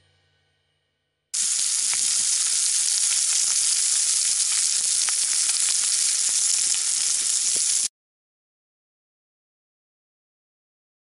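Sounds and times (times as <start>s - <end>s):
food sizzling in skillet: 1.4s - 7.9s
small pops: 1.4s - 7.9s.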